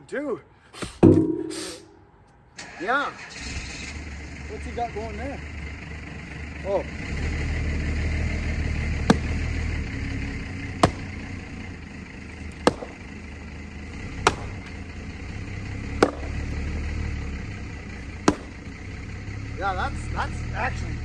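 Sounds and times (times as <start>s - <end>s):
engine running: 3.2s - 21.0s
axe chopping wood: 8.9s - 9.7s, 10.6s - 11.4s, 12.3s - 13.2s, 14.0s - 14.9s, 15.7s - 16.8s, 18.1s - 18.7s.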